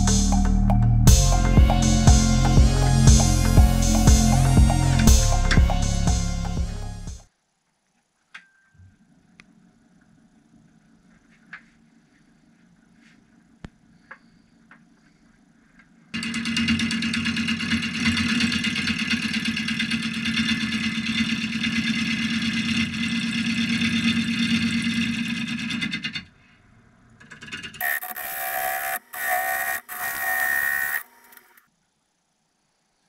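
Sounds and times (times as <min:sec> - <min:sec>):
higher whine: 0:00.0 - 0:07.3
wood lathe motor hum: 0:16.2 - 0:26.3, 0:27.8 - 0:31.6.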